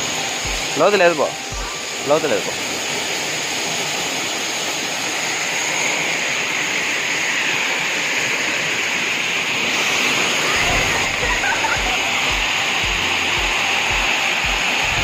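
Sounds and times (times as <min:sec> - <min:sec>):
waterfall rushing into pool: 0:00.0 - 0:15.0.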